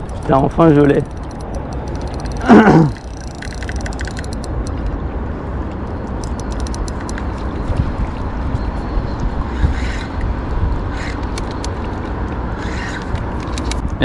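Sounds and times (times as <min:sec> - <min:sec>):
fishing reel clicking: 0:00.0 - 0:04.9, 0:06.2 - 0:07.2.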